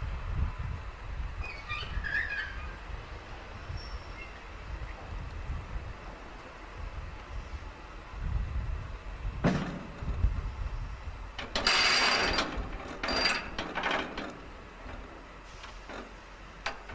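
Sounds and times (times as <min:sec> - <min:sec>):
railway car rolling: 0:00.0 - 0:16.9
brake hissing: 0:09.8 - 0:16.9
metallic clank: 0:11.4 - 0:15.1.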